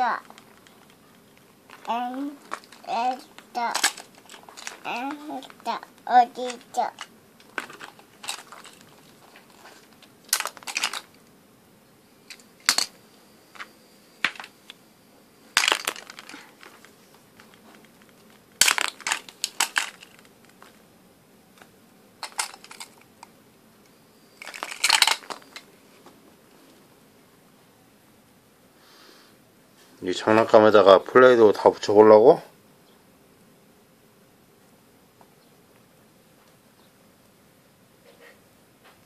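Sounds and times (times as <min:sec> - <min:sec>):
plastic toys clattering on floor: 0:01.7 - 0:05.8, 0:06.4 - 0:11.2, 0:12.3 - 0:13.0, 0:13.6 - 0:14.5, 0:15.6 - 0:20.8, 0:21.6 - 0:23.3, 0:24.4 - 0:25.7.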